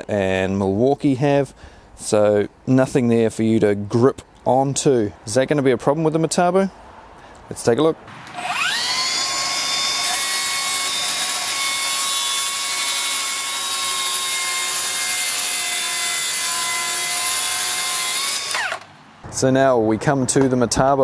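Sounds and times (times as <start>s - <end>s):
cordless saw whining through board: 8.2s - 18.9s.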